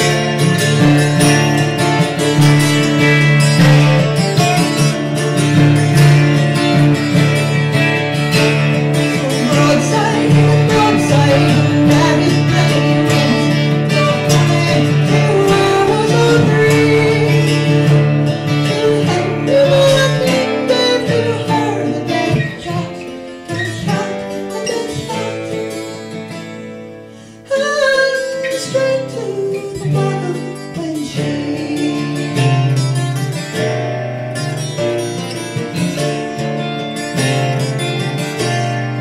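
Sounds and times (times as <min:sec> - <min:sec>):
acoustic guitar strummed: 0:00.0 - 0:39.0
mandola strummed: 0:00.0 - 0:39.0
woman singing: 0:09.0 - 0:25.8, 0:27.5 - 0:33.0.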